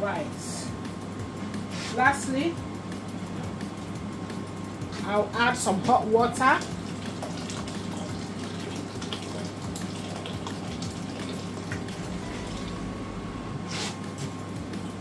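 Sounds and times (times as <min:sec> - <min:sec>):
water pouring into a pot: 0:06.6 - 0:12.8.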